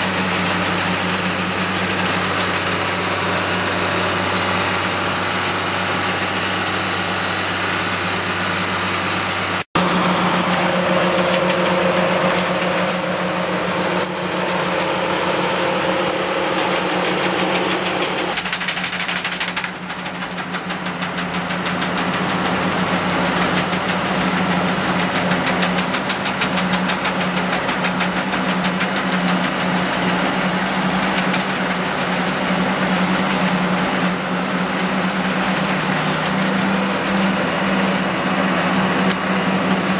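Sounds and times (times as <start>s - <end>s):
olive harvester engine and shaking: 0.0s - 39.9s.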